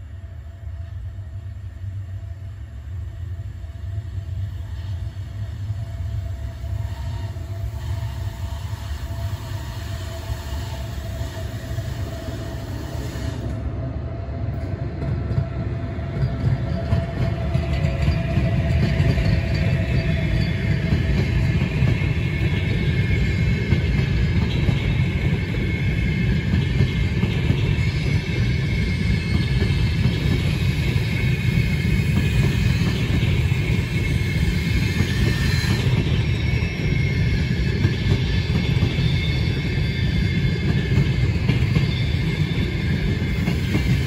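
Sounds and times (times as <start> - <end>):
passenger train rumbling past: 0.0 - 44.0
wheels hissing on rails: 0.0 - 44.0
faint high wheel squeal: 16.2 - 44.0.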